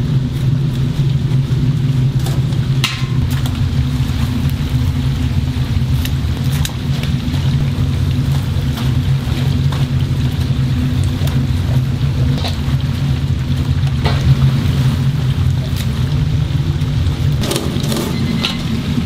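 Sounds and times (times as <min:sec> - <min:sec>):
chicken deep-frying in bubbling oil: 0:00.0 - 0:19.0
low machine rumble: 0:00.0 - 0:19.0.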